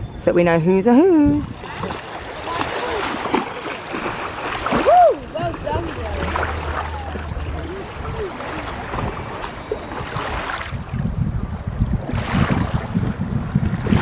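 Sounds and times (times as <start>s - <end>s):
wind rumbling on microphone: 0.0s - 14.0s
sea water lapping and splashing: 1.2s - 14.0s.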